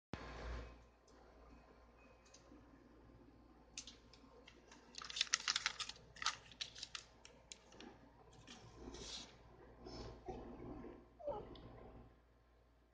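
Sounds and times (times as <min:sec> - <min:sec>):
paper crinkling and rustling: 0:03.8 - 0:09.4.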